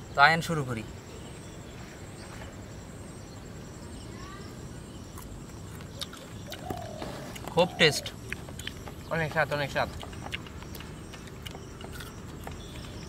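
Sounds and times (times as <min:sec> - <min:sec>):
faint bird call: 0:05.9 - 0:08.2.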